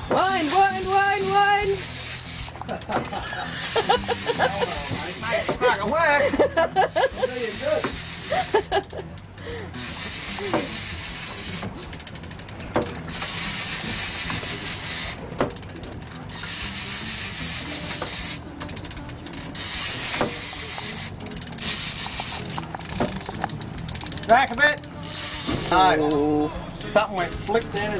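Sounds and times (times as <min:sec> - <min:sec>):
fishing reel clicking: 0:00.2 - 0:27.9
steady hiss: 0:09.8 - 0:11.7, 0:13.1 - 0:15.2, 0:16.4 - 0:18.4.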